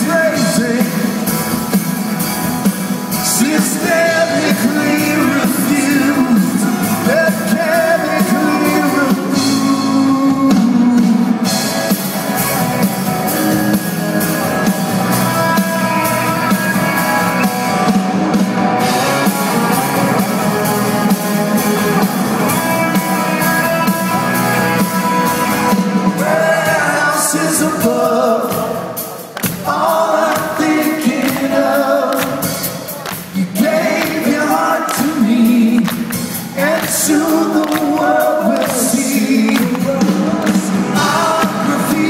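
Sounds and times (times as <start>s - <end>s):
upright bass: 0.0s - 28.3s, 29.4s - 42.0s
drums: 0.0s - 42.0s
guitars: 0.0s - 42.0s
voices singing in harmony: 3.2s - 11.5s, 18.8s - 42.0s.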